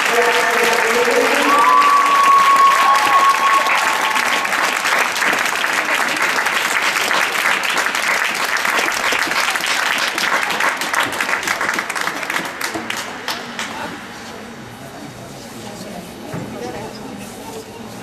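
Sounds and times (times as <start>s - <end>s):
audience applauding: 0.0s - 13.8s
held high tone: 0.8s - 5.0s.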